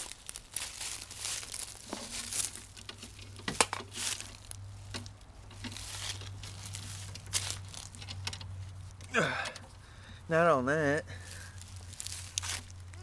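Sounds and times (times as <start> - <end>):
footsteps crunching dry leaves: 0.0 - 9.0, 11.0 - 13.0.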